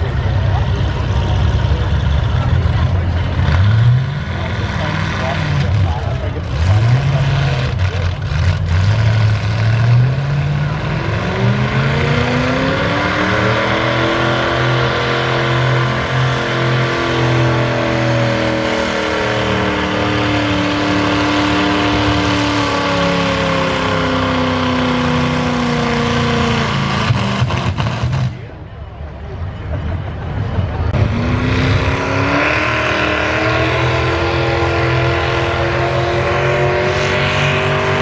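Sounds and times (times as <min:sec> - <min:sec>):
truck engine at full throttle: 0:00.0 - 0:38.0.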